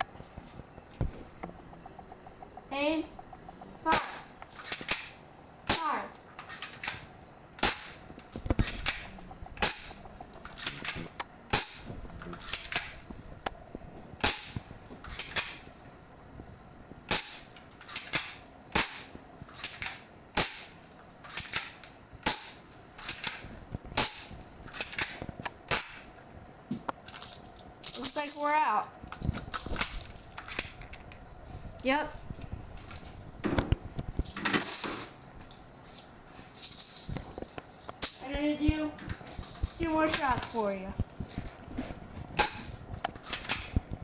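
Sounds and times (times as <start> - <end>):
airsoft pistol shots snapping: 7.6 - 8.0, 8.6 - 10.0, 10.6 - 11.9, 14.2 - 15.6, 17.1 - 23.4, 24.0 - 26.1.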